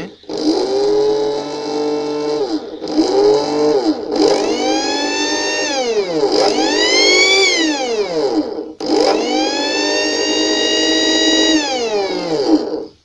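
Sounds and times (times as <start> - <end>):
small electric motor whining: 0.0 - 13.0.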